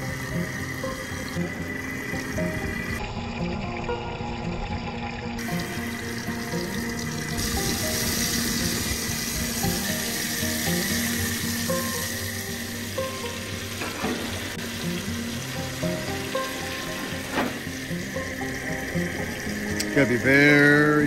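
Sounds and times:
fish sizzling in butter: 0.0 - 3.0, 5.4 - 21.0
background music: 0.0 - 21.0.

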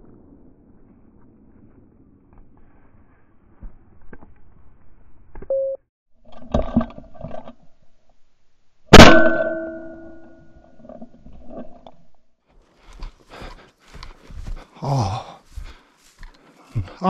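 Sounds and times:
short beep: 5.5 - 5.8
shotgun shot: 8.9 - 9.6.

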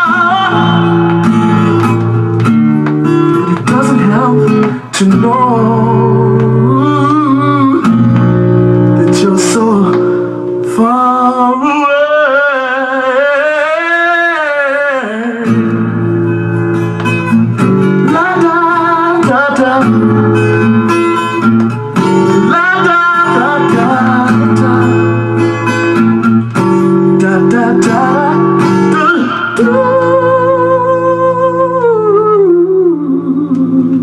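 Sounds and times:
person singing with wavering pitch: 0.0 - 1.6, 3.3 - 8.2, 8.8 - 15.9, 18.0 - 20.6, 22.3 - 25.4, 27.1 - 34.0.

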